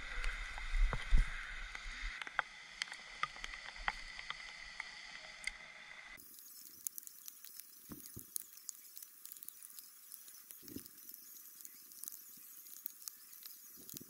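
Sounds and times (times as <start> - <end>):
small sharp clicks: 6.2 - 14.0.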